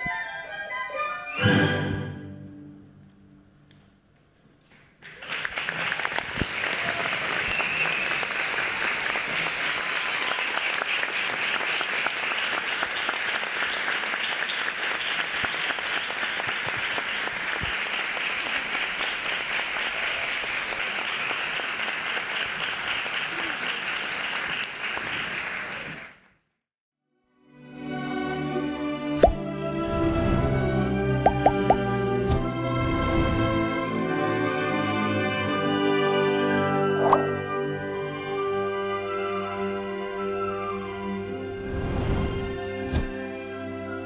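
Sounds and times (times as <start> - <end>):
audience applauding: 5.0 - 26.3.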